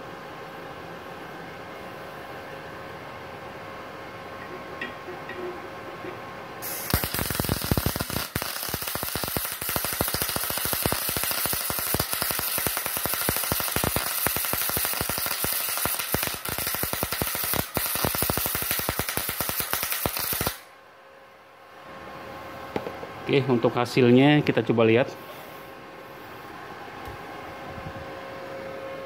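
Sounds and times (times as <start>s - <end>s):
welding arc crackling: 6.6s - 20.7s.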